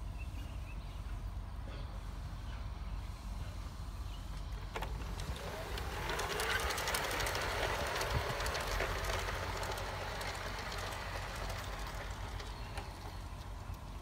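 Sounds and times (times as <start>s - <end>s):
model train wheels clicking: 4.3s - 14.0s.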